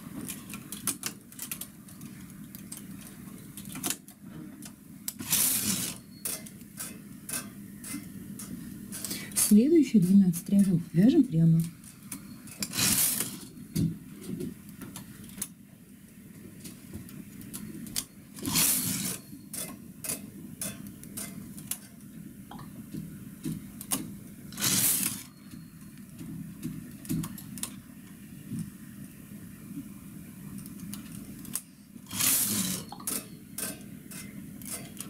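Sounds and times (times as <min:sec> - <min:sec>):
knitting machine carriage sliding: 0:05.2 - 0:06.0, 0:12.6 - 0:13.5, 0:18.4 - 0:19.2, 0:24.6 - 0:25.3, 0:32.1 - 0:33.0.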